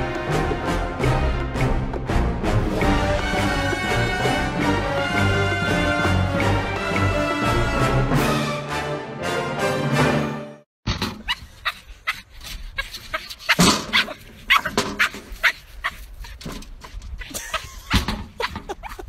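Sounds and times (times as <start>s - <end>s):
dog barking and yipping: 11.2s - 16.5s.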